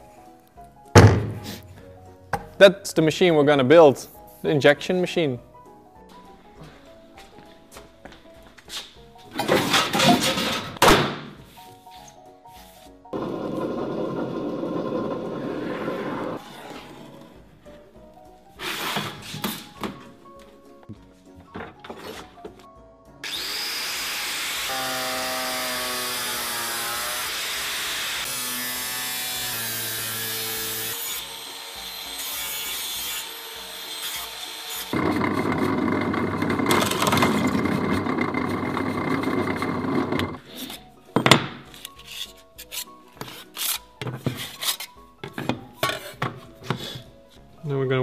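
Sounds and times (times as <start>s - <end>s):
angle grinder cutting sheet metal: 23.2s - 40.4s.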